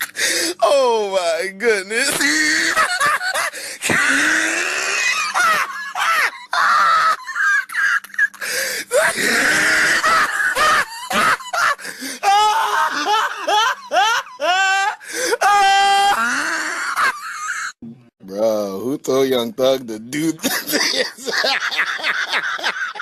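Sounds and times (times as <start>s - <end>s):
person laughing hard: 2.1s - 17.8s, 20.4s - 23.0s.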